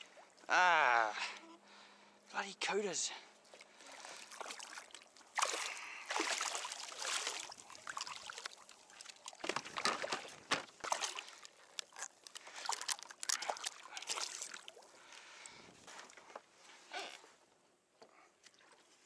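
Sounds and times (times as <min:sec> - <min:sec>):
water splashing and sloshing: 0:00.0 - 0:00.7, 0:03.1 - 0:17.2.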